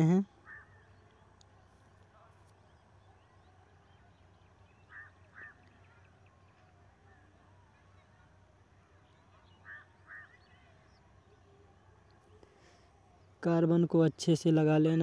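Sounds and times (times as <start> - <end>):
short bird calls: 0.3 - 1.4, 4.6 - 7.3, 9.2 - 11.0.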